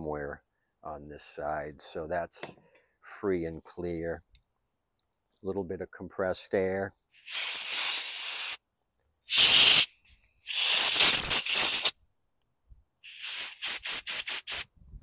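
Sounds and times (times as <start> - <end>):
compressed air blow gun blasting: 7.2 - 8.6, 9.3 - 11.9, 13.0 - 14.7.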